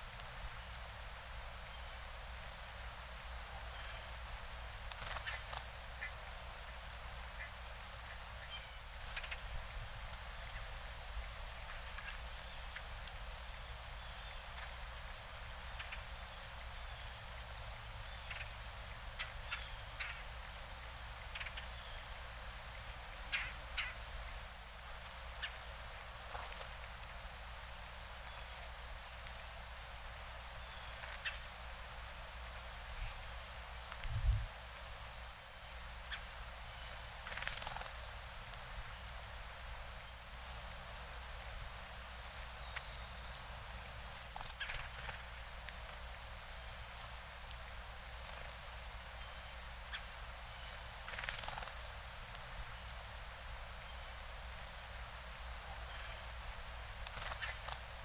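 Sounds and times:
bird chip calls: 7.0s - 9.5s, 18.1s - 22.1s, 22.8s - 24.0s, 44.1s - 45.5s, 57.1s - 57.8s.

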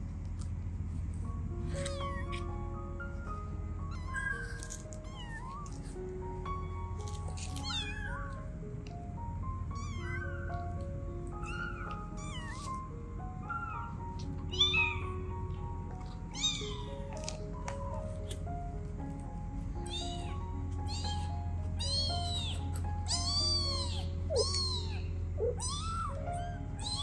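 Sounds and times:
soft background music: 0.0s - 27.0s
kitten mewing: 1.7s - 2.4s, 3.9s - 6.0s, 7.0s - 8.4s, 9.8s - 10.6s, 11.4s - 12.8s, 13.6s - 15.0s, 16.0s - 17.4s, 19.8s - 27.0s.

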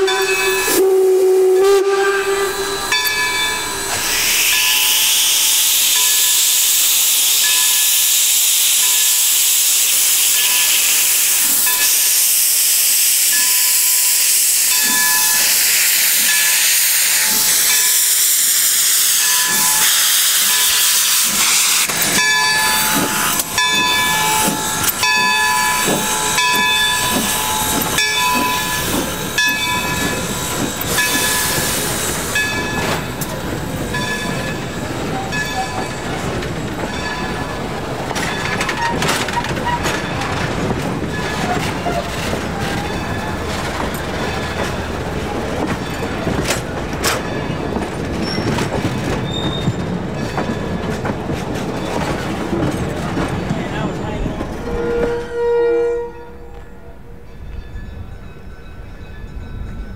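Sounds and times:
locomotive bell ringing: 0.0s - 0.9s, 2.5s - 5.0s, 14.7s - 16.8s, 21.5s - 48.5s, 52.8s - 59.9s
train coaches clicking and rumbling: 0.0s - 59.9s
steam hissing from locomotive: 0.1s - 46.7s.

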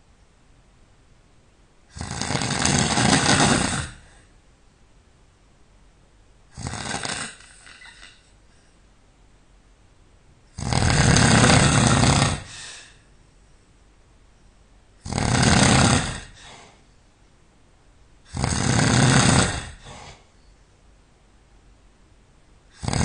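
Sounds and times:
person snoring: 1.9s - 4.3s, 6.5s - 8.3s, 10.6s - 13.0s, 15.0s - 16.8s, 18.3s - 20.3s, 22.7s - 23.0s.

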